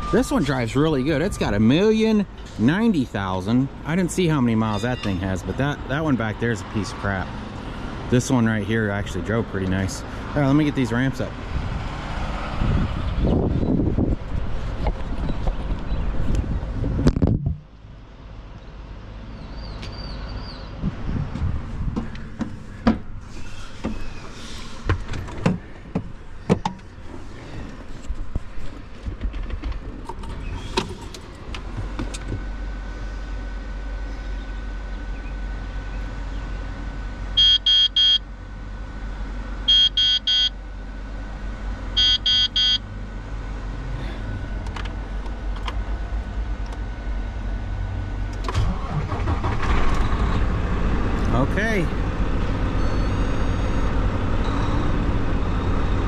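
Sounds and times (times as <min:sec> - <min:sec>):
knocks and clanks: 0:21.2 - 0:23.1, 0:24.8 - 0:26.9, 0:28.3 - 0:32.5
diesel truck engine idling: 0:31.3 - 0:56.0
rapid electronic warning beeps: 0:37.4 - 0:38.2, 0:39.7 - 0:40.5, 0:42.0 - 0:42.8.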